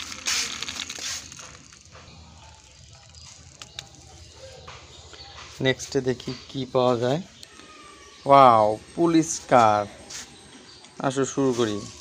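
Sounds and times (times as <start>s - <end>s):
toy wheels clicking grind on concrete: 0.0s - 6.5s
small clicks: 2.6s - 4.1s.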